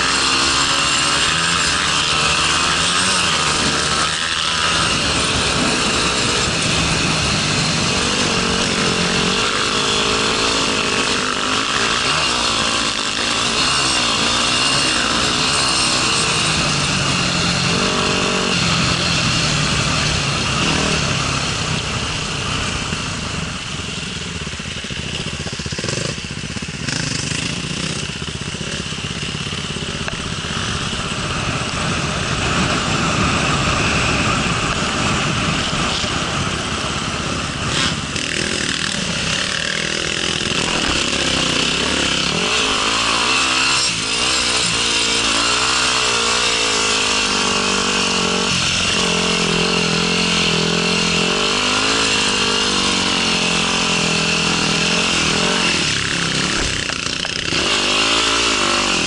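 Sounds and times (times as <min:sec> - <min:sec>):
wind and rumble noise: 0:00.0 - 0:11.7, 0:27.6 - 0:44.9
dirt bike engine revving: 0:00.0 - 0:59.0.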